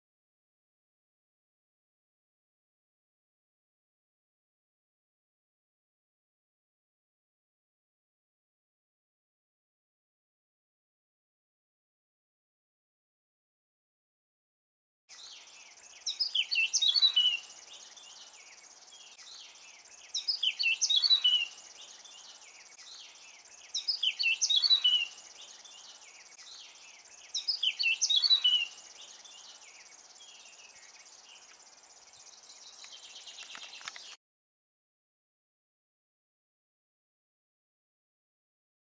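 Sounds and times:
bird warbling song: 15.1 - 34.2.

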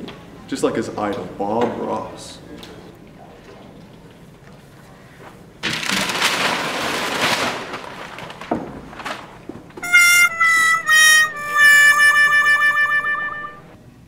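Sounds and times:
sad trombone sound effect: 9.8 - 13.7.

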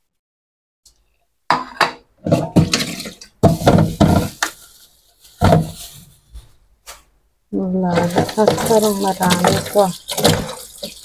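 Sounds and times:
dishes and strainer clattering: 1.5 - 4.6, 7.9 - 11.0.

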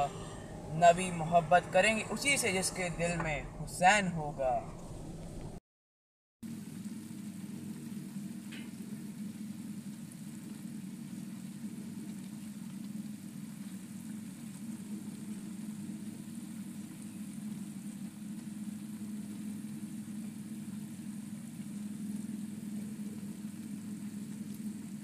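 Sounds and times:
pot boiling on gas stove: 6.5 - 25.0.

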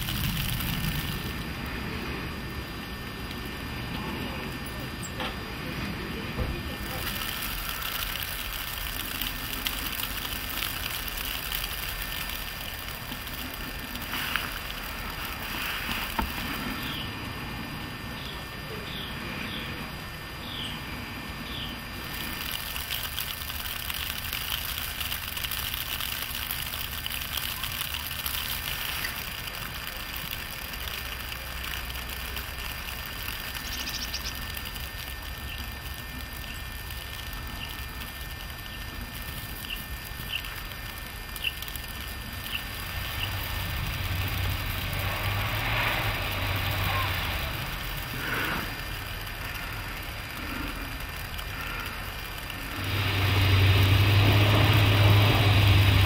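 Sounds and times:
steady outdoor hiss: 0.0 - 56.0
small bird chirping: 16.5 - 17.2, 20.4 - 20.8, 21.4 - 21.8, 33.2 - 34.8, 35.4 - 36.8, 37.4 - 37.9, 39.5 - 40.6, 41.3 - 43.6
van driving on snowy road: 42.9 - 56.0.

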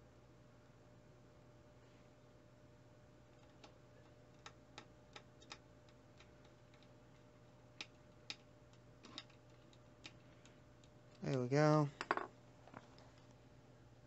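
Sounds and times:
low steady hum: 0.0 - 14.0
small clicks and taps of handling parts: 3.3 - 11.4, 12.0 - 13.4.

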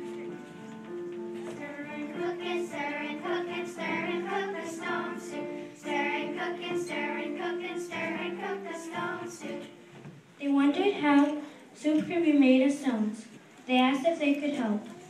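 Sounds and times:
children singing: 1.5 - 9.8.

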